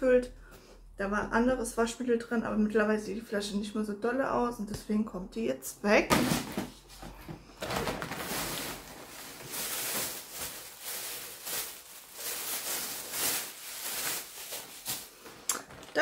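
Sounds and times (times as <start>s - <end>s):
plastic bag crinkling: 6.1s - 16.0s.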